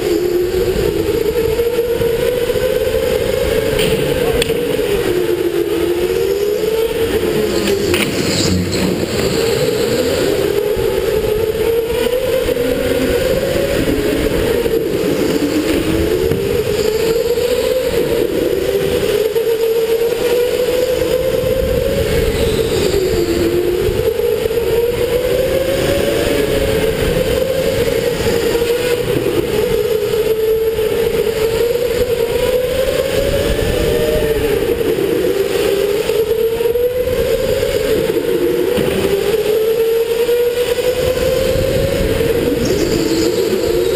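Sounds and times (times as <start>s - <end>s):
electric go-kart motor whining: 0.0s - 43.9s
low rumble: 6.9s - 11.2s.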